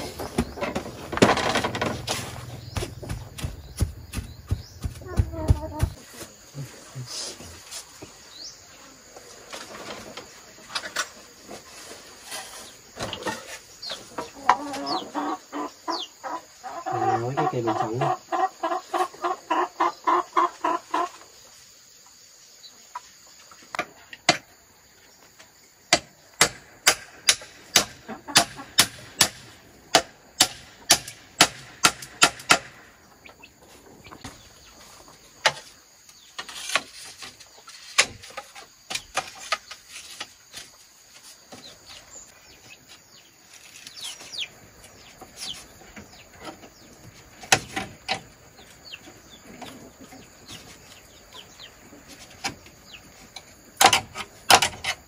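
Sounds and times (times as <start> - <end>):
chickens clucking: 0.0 - 25.6, 27.1 - 55.0
sharp knocks: 0.2 - 6.0, 25.9 - 32.8.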